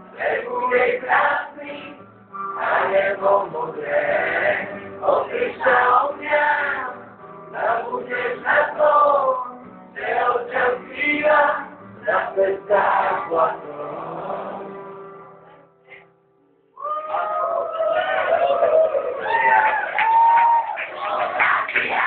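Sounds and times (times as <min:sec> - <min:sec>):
crowd chanting: 0:02.6 - 0:07.0, 0:07.6 - 0:09.4, 0:10.0 - 0:14.8, 0:21.0 - 0:22.0.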